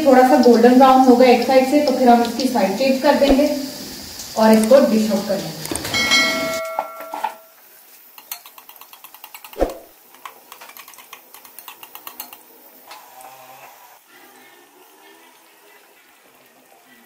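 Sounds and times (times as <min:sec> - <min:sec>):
oil popping while deep-frying: 0:00.0 - 0:06.0, 0:07.7 - 0:12.5
bell chime: 0:06.0 - 0:07.5.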